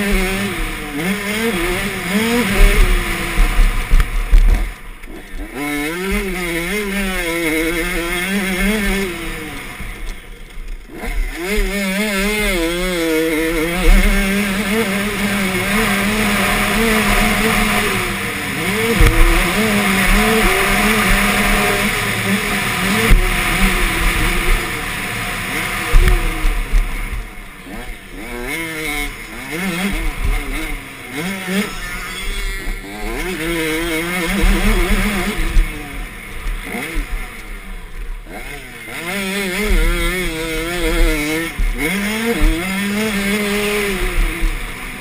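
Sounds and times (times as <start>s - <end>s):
two-stroke motocross bike revving: 0.0s - 45.0s.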